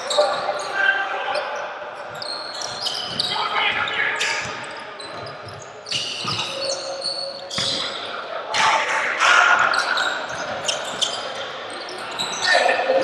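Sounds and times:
basketball bouncing on court: 0:02.1 - 0:06.6, 0:07.5 - 0:07.9.

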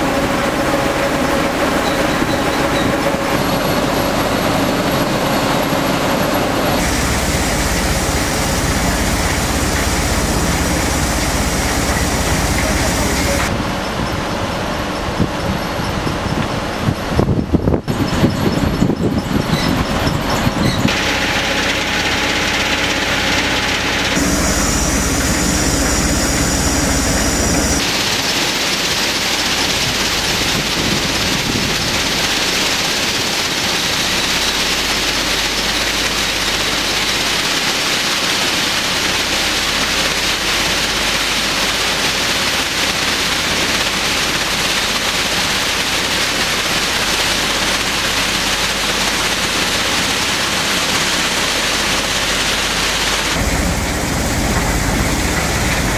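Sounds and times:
machine hum with low drone: 0:00.0 - 0:55.9
water and slurry rushing: 0:00.0 - 0:55.9.

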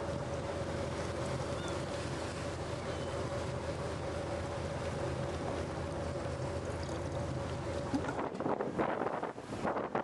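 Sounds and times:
ship engine rumble: 0:00.0 - 0:10.0
wind noise on microphone: 0:07.9 - 0:10.0.

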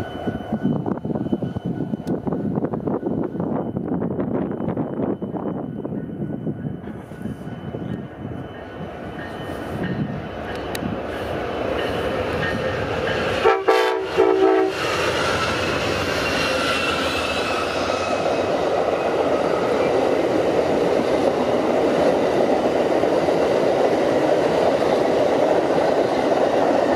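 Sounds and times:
train wheels rumbling on rail: 0:00.0 - 0:26.9
train horn short blasts: 0:13.4 - 0:14.9.

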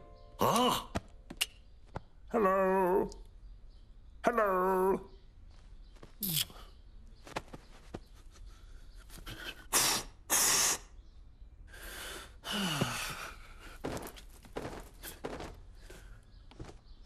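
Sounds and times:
short puffs of breath: 0:09.3 - 0:10.9.

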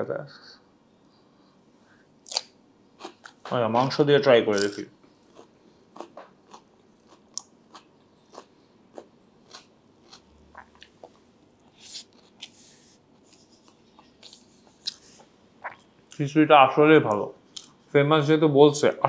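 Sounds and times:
mouth clicks and smacks: 0:02.2 - 0:03.5
chewing food: 0:04.5 - 0:12.5.

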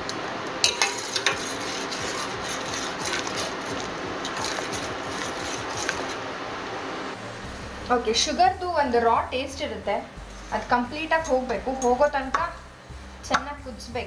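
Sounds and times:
syrup boiling in pot: 0:00.0 - 0:07.6.

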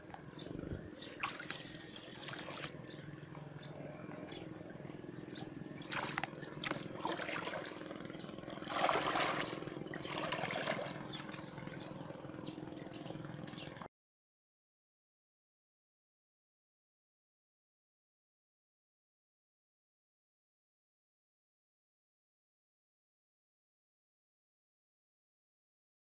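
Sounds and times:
water splashing and sloshing: 0:00.0 - 0:03.6, 0:04.6 - 0:13.9
faint low hum: 0:00.0 - 0:13.9.

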